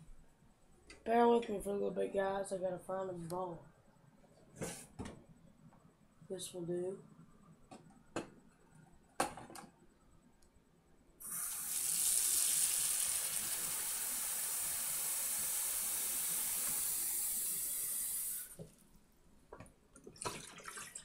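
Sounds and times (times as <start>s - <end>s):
faucet running into metal sink: 11.2s - 18.6s.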